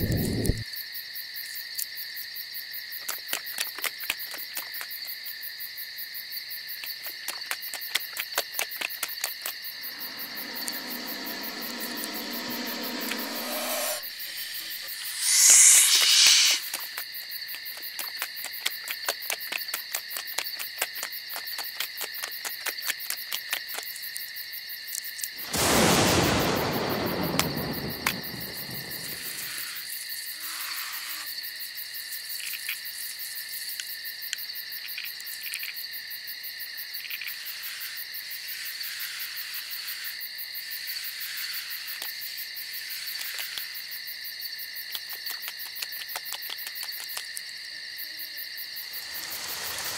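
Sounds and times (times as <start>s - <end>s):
crickets chirping: 0.0s - 49.9s
loud burst falling in pitch: 25.5s - 29.5s.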